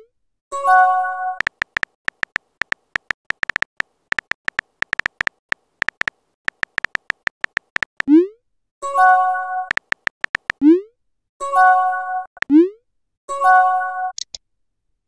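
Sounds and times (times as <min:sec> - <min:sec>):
keyboard tap clicks: 0:01.4 - 0:08.1, 0:09.7 - 0:10.6
phone alert tone: 0:01.4 - 0:08.1.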